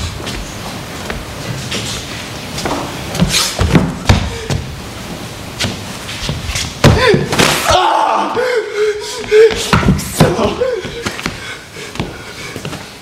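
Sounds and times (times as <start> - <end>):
person crying out: 6.9 - 11.1.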